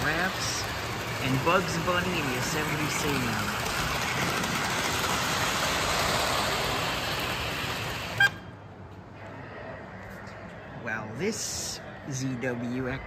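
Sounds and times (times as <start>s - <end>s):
toy train whirring: 0.0s - 8.5s.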